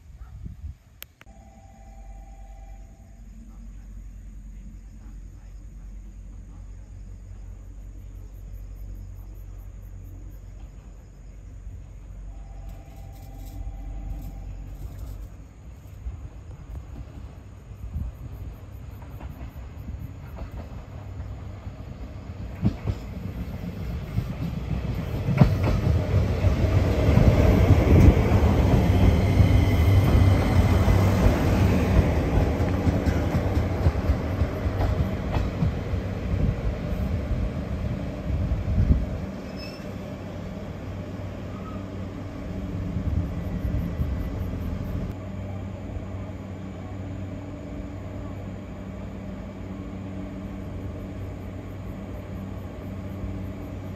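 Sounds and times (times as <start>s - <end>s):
standing train hum: 0.0s - 53.9s
train rumble and wheel clatter: 2.8s - 53.9s
brake and wheel squeal: 39.4s - 40.1s, 41.5s - 42.0s.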